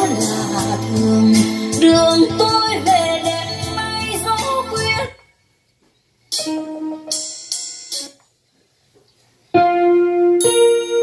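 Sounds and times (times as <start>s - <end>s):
held electric keyboard notes: 6.3s - 8.2s, 9.5s - 11.0s
keyboard phrase with cymbal hits: 6.3s - 8.2s.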